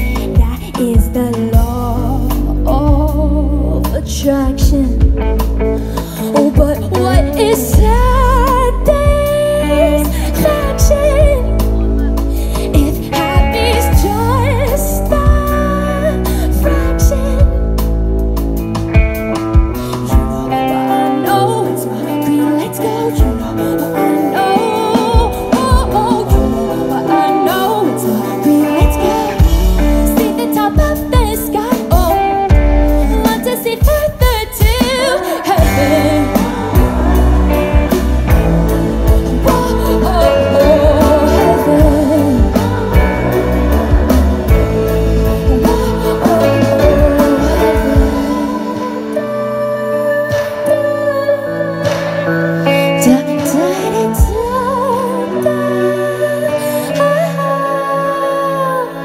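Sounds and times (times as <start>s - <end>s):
drums: 0.0s - 59.0s
electric guitar: 0.0s - 59.0s
pop-rock band playing: 0.0s - 59.0s
woman singing into a microphone: 0.0s - 59.0s.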